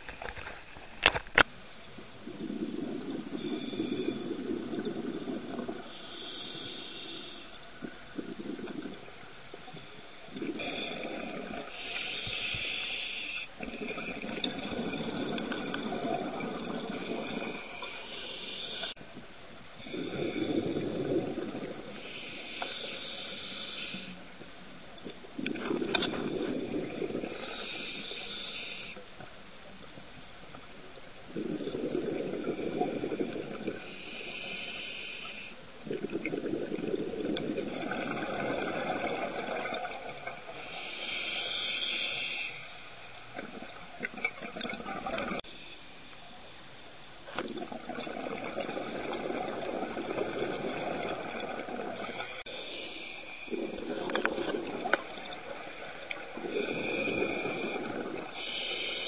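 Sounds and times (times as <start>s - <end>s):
hissing regulator inhalations: 5.6s - 9.0s, 9.7s - 15.9s, 16.9s - 19.0s, 21.9s - 24.2s, 27.2s - 29.0s, 32.5s - 35.6s, 40.5s - 43.3s, 52.0s - 59.0s
bubbling exhalations underwater: 13.6s - 17.8s, 19.8s - 22.0s, 25.4s - 27.4s, 31.3s - 33.8s, 35.8s - 40.4s, 43.4s - 45.4s, 47.4s - 52.4s, 53.5s - 58.4s.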